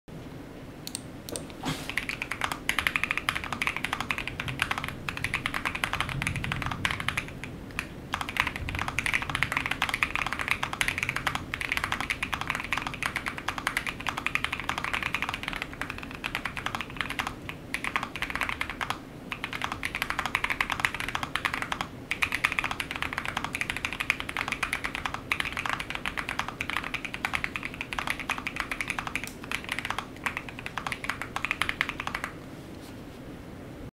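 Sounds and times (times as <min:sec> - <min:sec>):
mechanical keyboard typing: 0:00.9 - 0:32.4.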